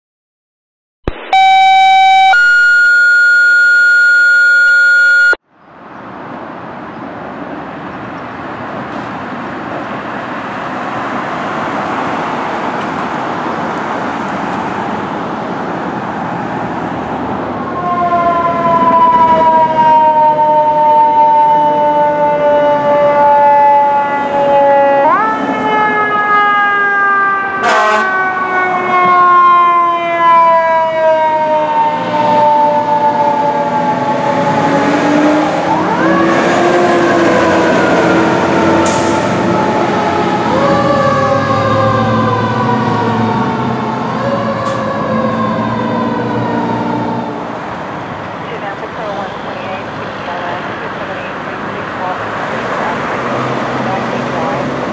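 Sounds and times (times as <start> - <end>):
street noise: 1.0 - 54.9
steady electronic tones: 1.1 - 5.4
fire engine siren wailing: 1.3 - 5.4, 17.4 - 54.9
sharp horn blast: 27.6 - 28.2.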